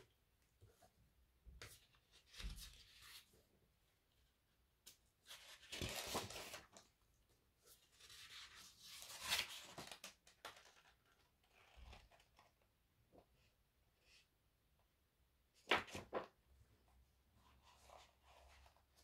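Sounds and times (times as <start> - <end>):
book pages rustling: 5.2 - 6.9.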